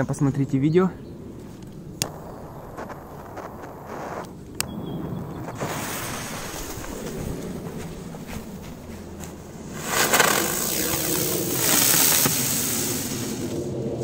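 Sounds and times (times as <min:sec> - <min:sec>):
firework hissing and crackling: 0:02.0 - 0:04.5, 0:05.4 - 0:07.4, 0:09.6 - 0:13.7.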